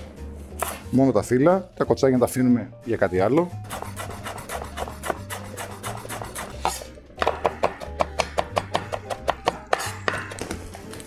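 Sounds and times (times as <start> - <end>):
knife chopping on cutting board: 0.6 - 0.9, 3.7 - 10.6.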